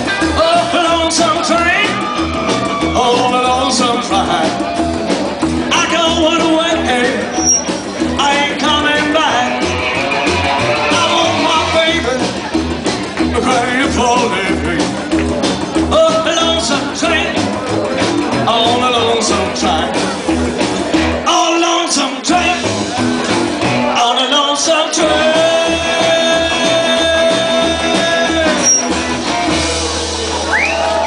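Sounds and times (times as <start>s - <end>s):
person singing: 0.0s - 4.7s, 5.7s - 7.4s, 8.0s - 12.5s, 13.2s - 15.0s, 15.8s - 20.0s, 23.7s - 29.5s
guitars playing: 0.0s - 31.0s
upright double bass: 0.0s - 31.0s.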